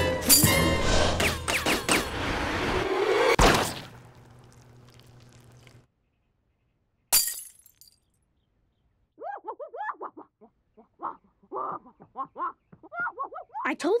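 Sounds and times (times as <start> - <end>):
object breaking with crash: 3.4 - 5.8.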